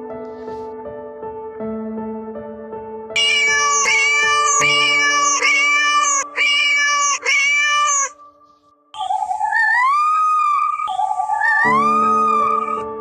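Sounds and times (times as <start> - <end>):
high-pitched synth notes: 3.2 - 8.1.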